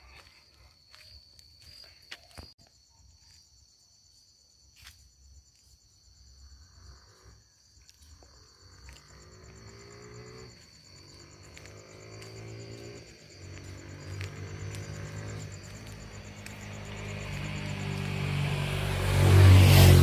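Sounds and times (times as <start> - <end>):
night insects trilling: 0.0 - 20.0
low drone rising in pitch: 11.9 - 20.0.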